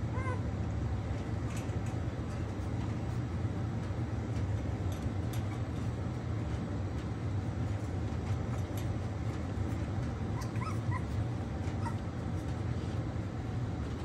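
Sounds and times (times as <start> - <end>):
steady low hum: 0.0 - 14.0
puppies squeaking and whimpering: 0.1 - 0.5, 10.2 - 12.4.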